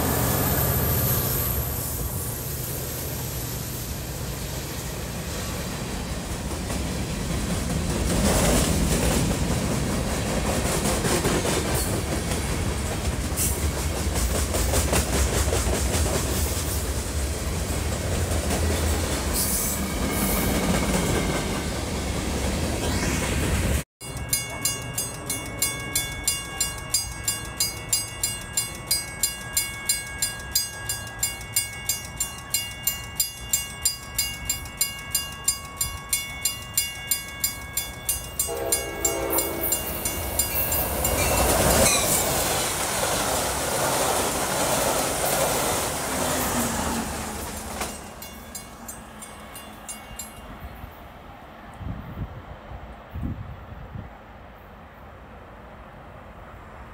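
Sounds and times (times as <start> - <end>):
oncoming train noise: 0.0 - 56.9
level crossing warning bell: 24.0 - 42.4, 47.9 - 50.9
train horn: 38.4 - 40.0.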